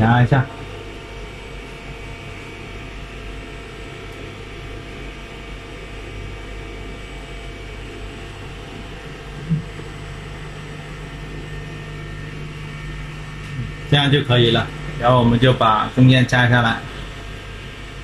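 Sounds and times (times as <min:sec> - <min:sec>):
machine hum: 0:00.0 - 0:18.0
low steady tone: 0:05.8 - 0:18.0.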